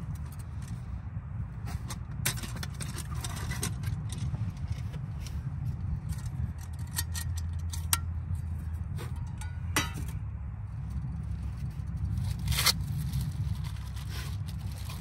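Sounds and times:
steady low rumble: 0.0 - 15.0
metal cookware clinking: 9.2 - 10.1.

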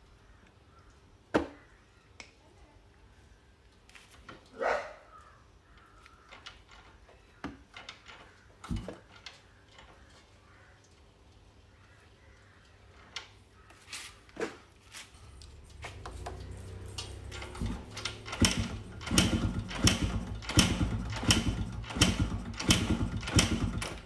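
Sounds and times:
motorcycle kick-start pumped: 7.8 - 9.9, 15.5 - 24.0.

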